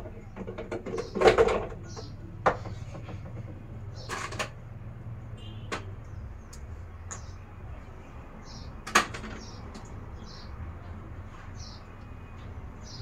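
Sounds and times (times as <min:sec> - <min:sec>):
objects clattering: 0:00.0 - 0:04.6.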